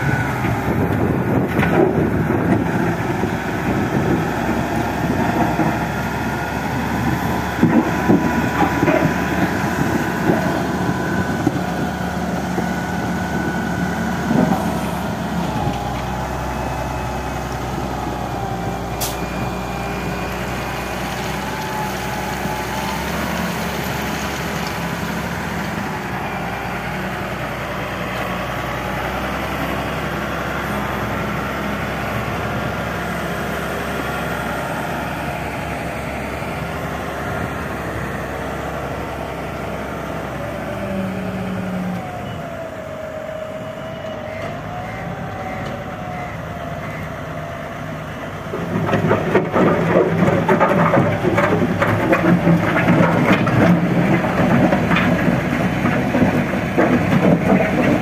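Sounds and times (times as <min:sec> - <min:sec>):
loader diesel engine working: 0:00.0 - 0:58.0.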